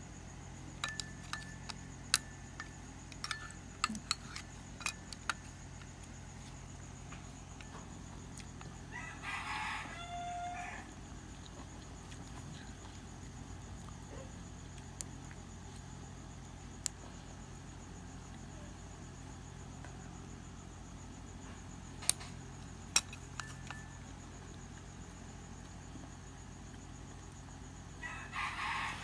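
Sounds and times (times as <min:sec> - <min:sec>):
restaurant room hum: 0:00.0 - 0:29.0
utensils clicking on ceramic bowls: 0:00.8 - 0:05.5.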